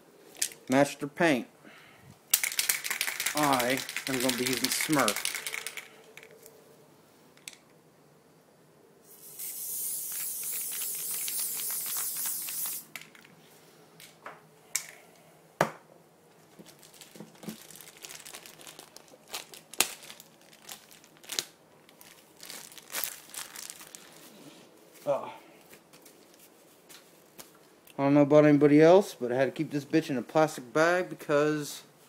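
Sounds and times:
spray paint can hissing: 9.0 - 13.1.

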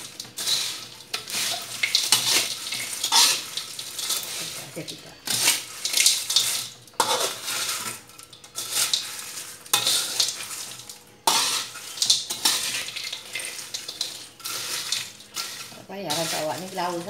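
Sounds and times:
metal spatula scraping a wok: 0.0 - 17.0.

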